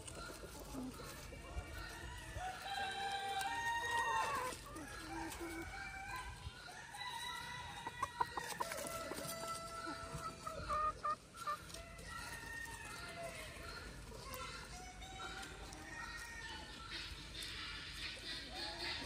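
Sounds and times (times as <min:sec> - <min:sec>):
roosters crowing: 0:00.0 - 0:13.9
chicken clucks: 0:00.0 - 0:19.0.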